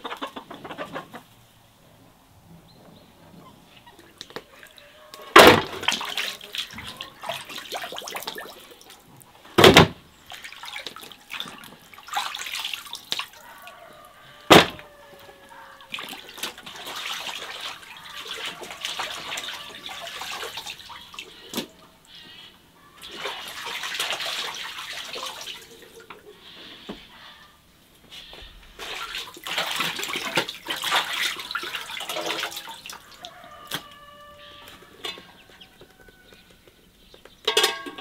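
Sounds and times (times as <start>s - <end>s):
water sloshing and splashing: 3.8s - 26.2s, 28.3s - 35.8s
sharp knocks: 5.4s - 5.8s, 14.5s - 14.8s.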